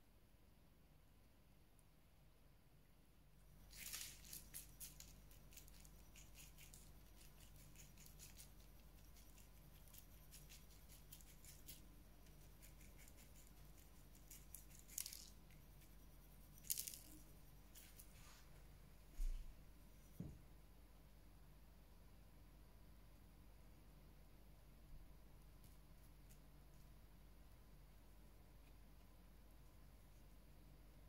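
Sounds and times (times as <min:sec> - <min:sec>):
sugar grains pattering: 0:03.5 - 0:18.3.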